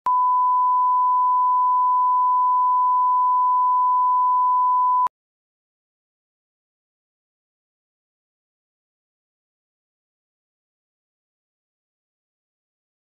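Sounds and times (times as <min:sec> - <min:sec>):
sine-wave reference tone: 0:00.1 - 0:05.1.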